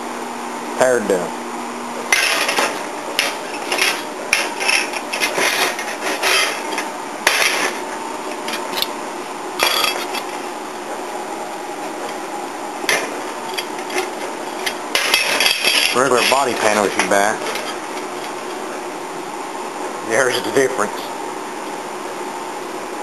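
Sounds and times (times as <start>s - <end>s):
sheet steel clanking and scraping: 2.1s - 7.8s, 13.6s - 18.1s.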